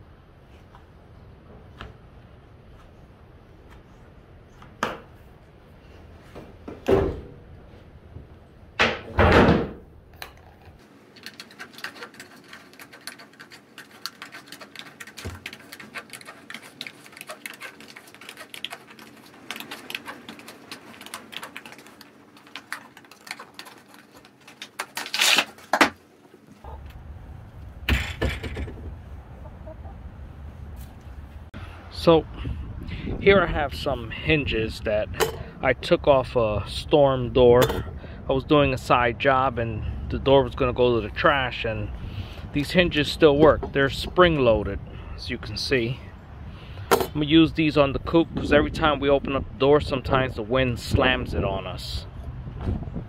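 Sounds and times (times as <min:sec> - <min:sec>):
loud knocks and thuds: 0:08.8 - 0:09.9.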